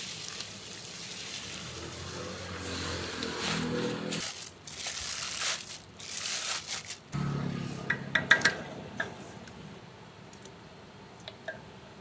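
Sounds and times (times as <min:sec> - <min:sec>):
plastic bag crinkling: 0:04.2 - 0:07.2.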